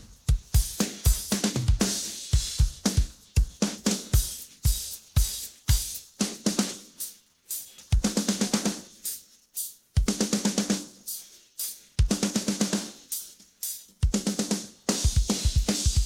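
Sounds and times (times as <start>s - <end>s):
bass drum: 0.0s - 6.6s, 13.9s - 16.0s.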